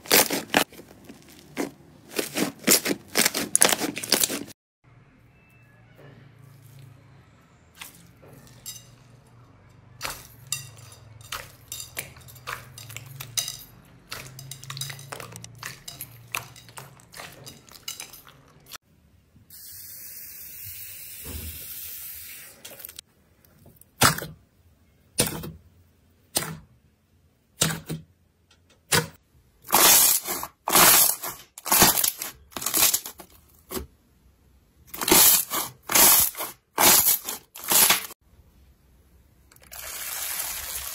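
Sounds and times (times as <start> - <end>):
bead-filled slime crackling: 0.0 - 4.5
slime squishing: 0.0 - 4.5.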